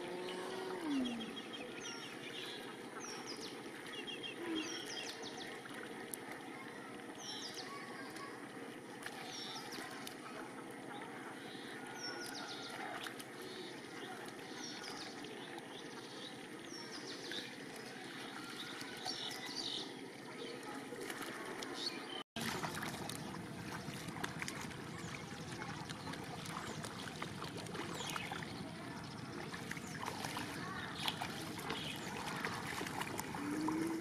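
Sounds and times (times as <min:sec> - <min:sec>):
water sloshing and splashing: 0:00.0 - 0:34.0.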